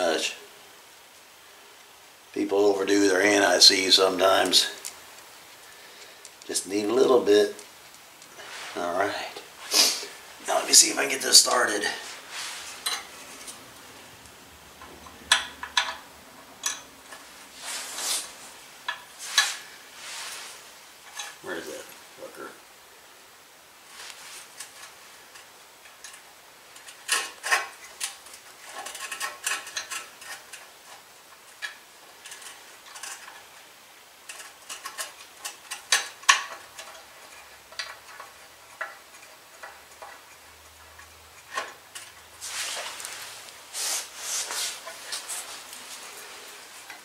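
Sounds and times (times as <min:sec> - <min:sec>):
rustle: 0:00.0 - 0:47.0
small metal clicks and scrapes: 0:04.2 - 0:08.6, 0:12.6 - 0:13.6, 0:16.6 - 0:17.3, 0:21.0 - 0:21.8, 0:24.0 - 0:47.0.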